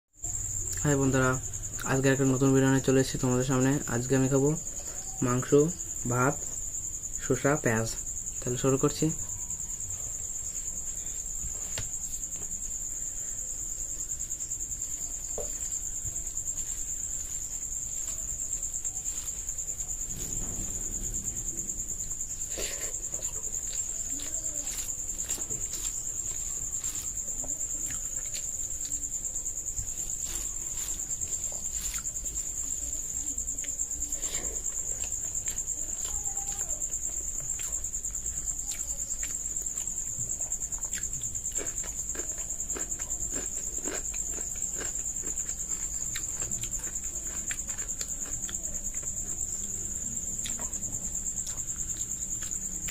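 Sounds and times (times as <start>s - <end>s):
crickets trilling: 0.1s - 52.9s
chewing: 14.7s - 52.9s
hand mixing food on plate: 14.8s - 52.9s.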